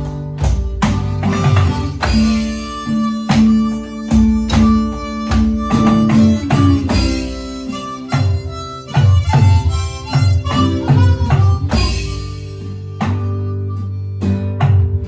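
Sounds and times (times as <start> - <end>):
electronic drum beat: 0.0 - 13.5
acoustic guitar: 0.0 - 15.0
harmonica playing blues: 0.0 - 15.0.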